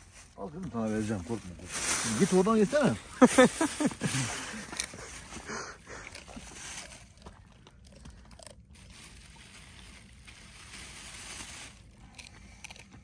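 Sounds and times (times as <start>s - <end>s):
plastic bag rustling: 0.0s - 7.2s, 8.4s - 12.3s
dog chewing: 5.9s - 8.8s, 12.0s - 13.0s.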